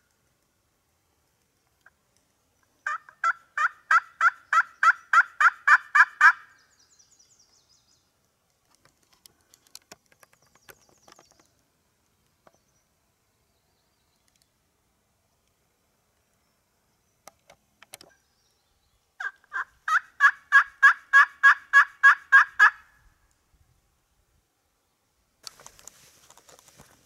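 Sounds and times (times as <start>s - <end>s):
turkey yelps: 2.8s - 6.5s, 19.2s - 22.9s
faint clicks: 8.2s - 12.6s, 14.2s - 14.6s.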